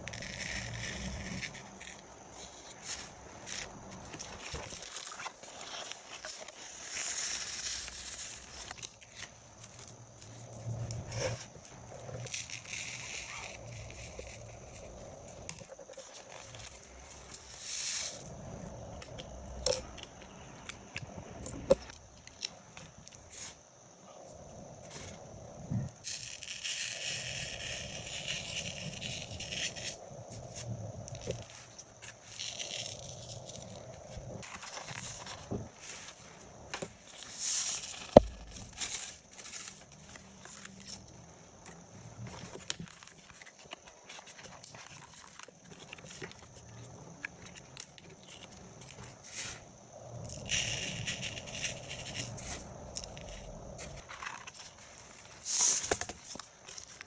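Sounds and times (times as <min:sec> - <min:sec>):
sand hissing: 0:16.5 - 0:18.8, 0:37.2 - 0:39.2, 0:55.3 - 0:56.3
sand sliding hiss: 0:16.6 - 0:18.8, 0:26.1 - 0:39.2, 0:54.7 - 0:56.4.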